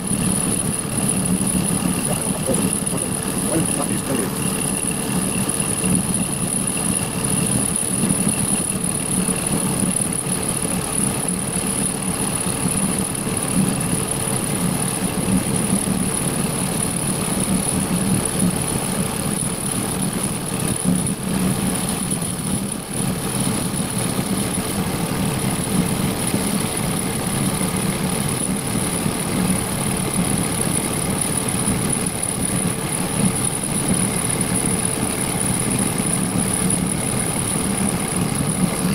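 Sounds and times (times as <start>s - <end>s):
lathe machine hum: 0.0s - 10.5s
high-pitched whine: 0.0s - 38.9s.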